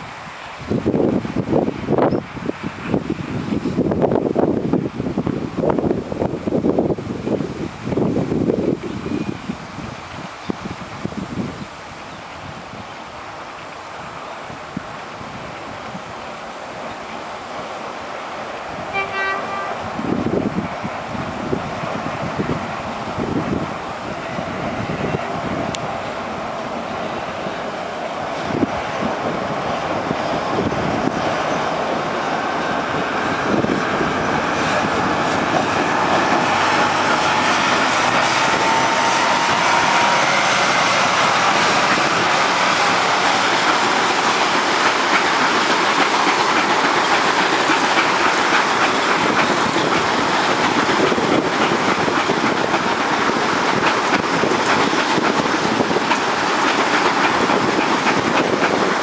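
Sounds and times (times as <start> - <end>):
train wheels clacking over rail joints: 32.0 - 59.0.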